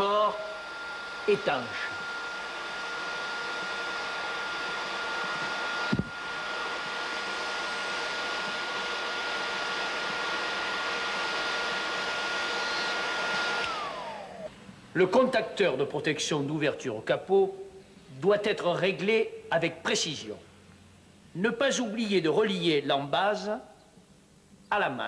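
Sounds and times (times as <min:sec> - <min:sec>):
heat gun blowing with whine: 0:00.0 - 0:14.6.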